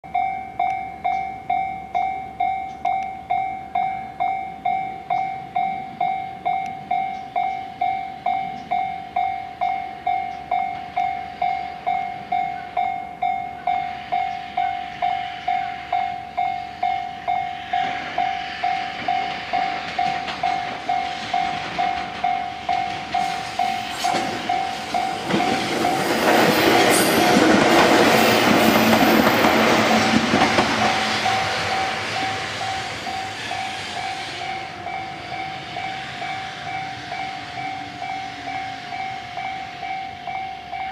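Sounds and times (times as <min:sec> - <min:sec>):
level crossing bell ringing: 0:00.0 - 0:17.6, 0:19.2 - 0:26.2, 0:34.4 - 0:40.9
electric train passing: 0:00.1 - 0:40.9.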